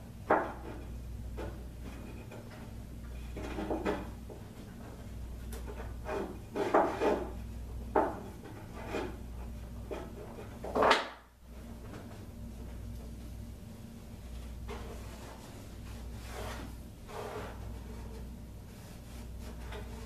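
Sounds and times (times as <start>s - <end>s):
low steady hum: 0.0s - 20.0s
wooden block scraping carpet: 14.7s - 20.0s.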